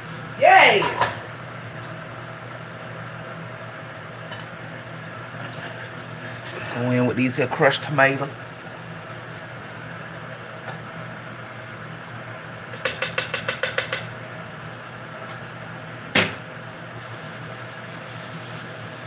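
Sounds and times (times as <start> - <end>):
steady low hum: 0.0 - 19.0
single loud knock: 16.2 - 16.4.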